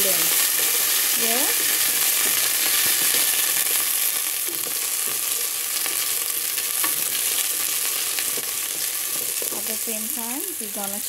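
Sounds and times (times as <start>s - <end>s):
potatoes sizzling in hot oil: 0.0s - 11.0s
wooden spoon stirring: 4.6s - 9.9s.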